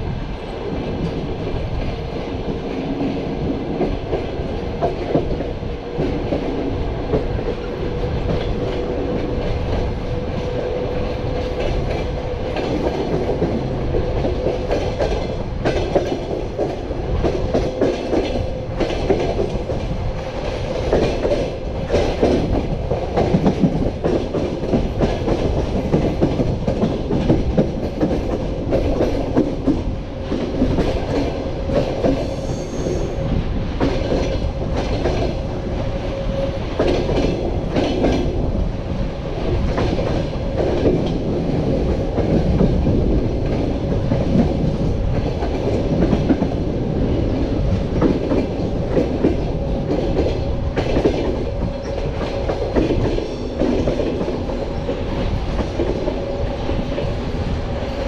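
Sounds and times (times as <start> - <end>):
train rolling rumble: 0.0 - 58.0.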